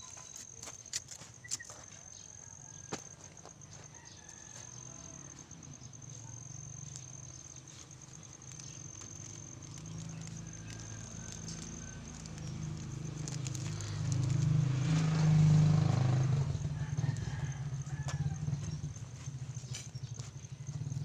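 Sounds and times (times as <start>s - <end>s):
high-pitched insect trill: 0.0s - 21.0s
soil and plastic pot rustling: 6.8s - 15.2s.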